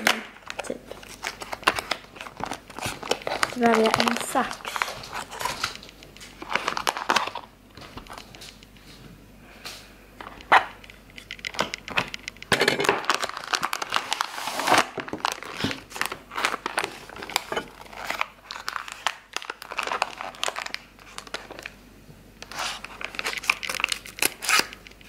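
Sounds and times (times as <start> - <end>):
scissors cutting bag: 0.0 - 5.8, 22.4 - 25.0
plastic bag crinkling: 0.0 - 8.6, 10.2 - 21.8, 22.4 - 25.0.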